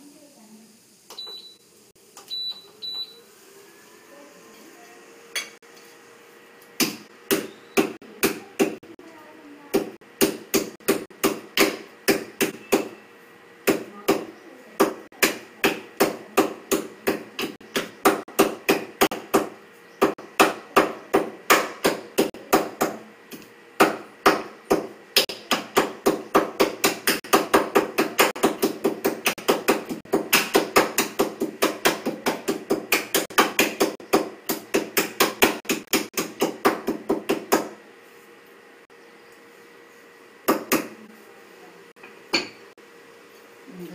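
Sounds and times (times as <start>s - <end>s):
pestle striking metal mortar: 23.8s - 37.6s.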